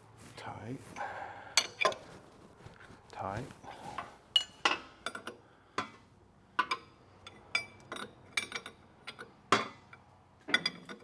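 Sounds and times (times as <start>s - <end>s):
wrench clinking on metal fittings: 6.6s - 11.0s.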